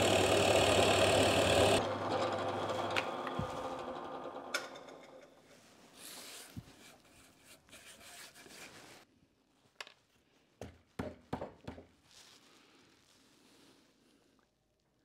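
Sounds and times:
steel rule tapping drill bit: 0.0 - 4.0
hands brushing wood shavings: 5.7 - 9.1.

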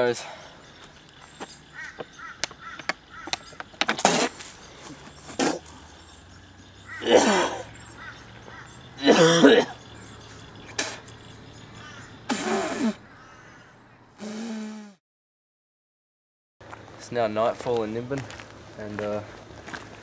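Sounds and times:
man retching and coughing: 7.0 - 7.7, 9.0 - 9.8.

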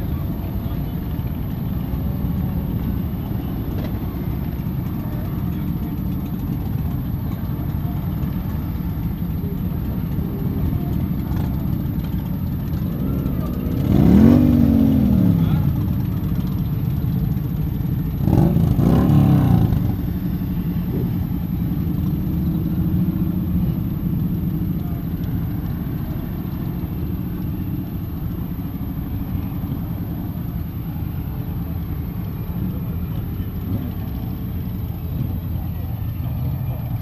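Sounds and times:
motorcycle engines rumbling: 0.0 - 37.0
motorcycle accelerating away: 12.7 - 16.5, 18.2 - 20.3.

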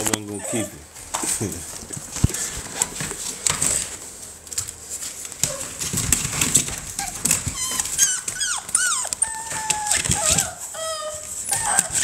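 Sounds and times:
puppy whining: 0.0 - 1.0, 5.4 - 5.9, 6.8 - 12.0.

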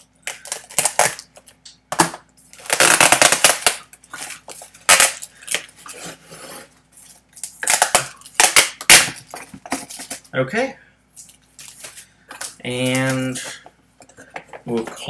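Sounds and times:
rustling packing material and cardboard: 11.2 - 13.6.

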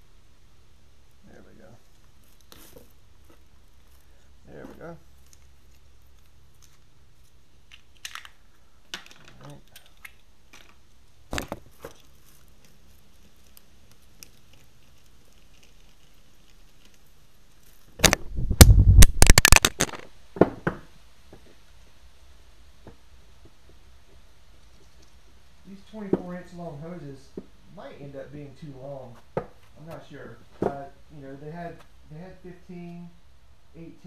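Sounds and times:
crackling handling noise: 1.7 - 21.7.

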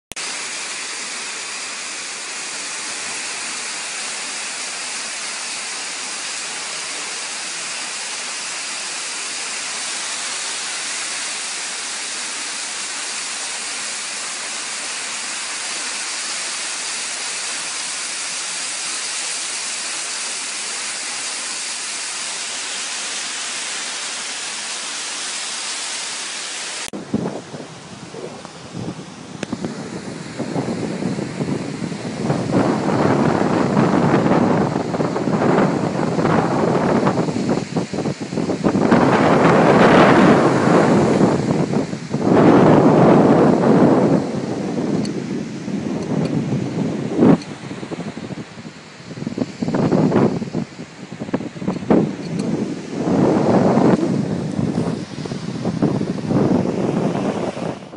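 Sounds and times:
heavy rain pouring: 0.1 - 57.9
surf: 0.1 - 57.9
wind buffeting microphone: 26.9 - 57.9.

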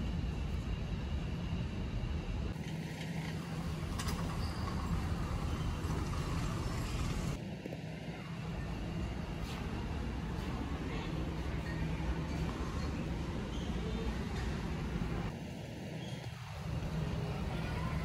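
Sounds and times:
warehouse hum and rumble: 0.0 - 18.0.

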